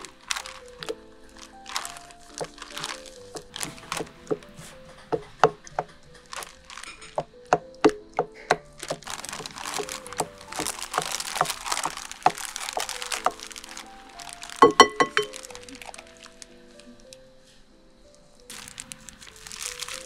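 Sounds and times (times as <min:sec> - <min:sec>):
plastic bag crinkling: 0:00.0 - 0:17.2, 0:18.5 - 0:20.0
wooden spatula tapping glass: 0:14.6 - 0:15.4.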